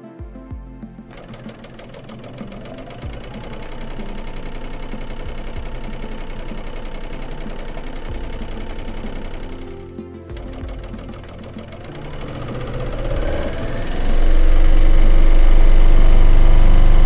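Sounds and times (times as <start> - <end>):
overlock sewing machine clatter: 1.1 - 17.0.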